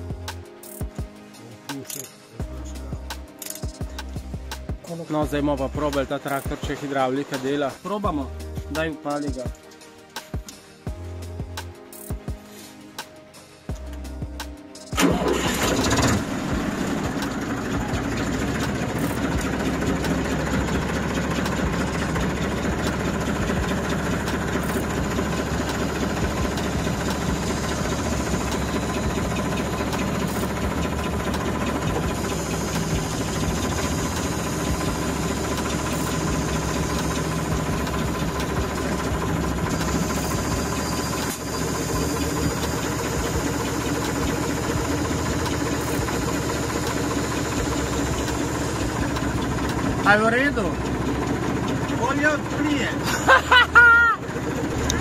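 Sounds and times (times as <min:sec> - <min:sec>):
diesel engine starting and idling: 0:13.7 - 0:55.0.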